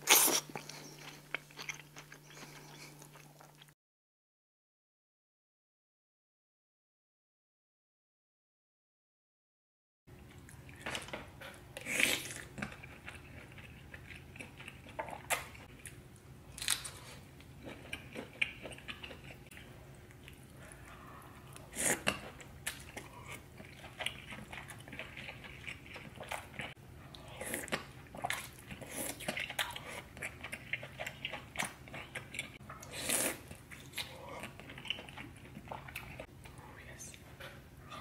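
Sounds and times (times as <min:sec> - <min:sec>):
wet chewing: 0:00.0 - 0:03.8, 0:16.6 - 0:36.3.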